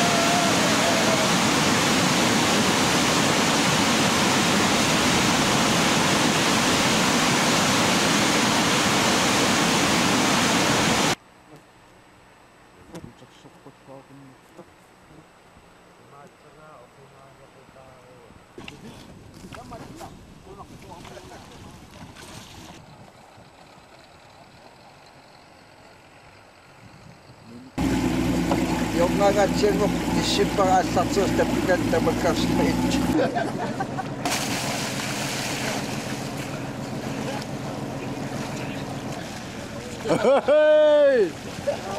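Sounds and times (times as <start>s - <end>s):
rushing waterfall and rapids: 0.0s - 11.2s
outboard motor running: 20.8s - 41.9s.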